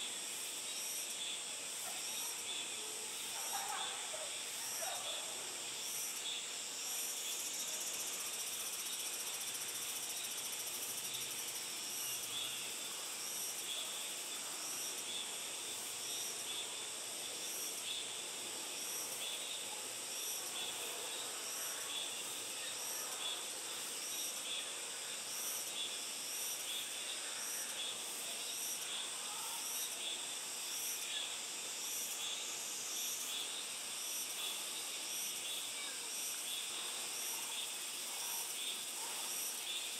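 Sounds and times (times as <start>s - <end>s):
insects chorus pulsing: 0.1s - 39.9s.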